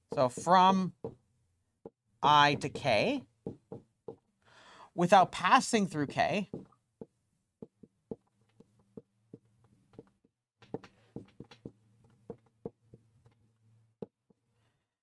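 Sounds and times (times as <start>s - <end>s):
marker writing on whiteboard: 5.5s - 13.4s.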